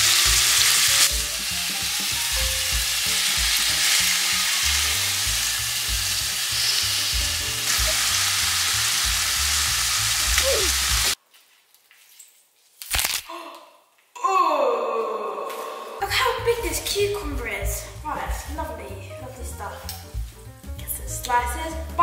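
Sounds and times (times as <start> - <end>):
chicken sizzling in a pan: 0.0 - 11.2.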